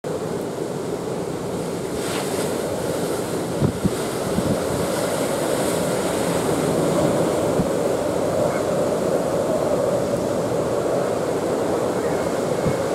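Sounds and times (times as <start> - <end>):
surf breaking against a seawall: 1.6 - 9.4
wind buffeting microphone: 2.8 - 12.9.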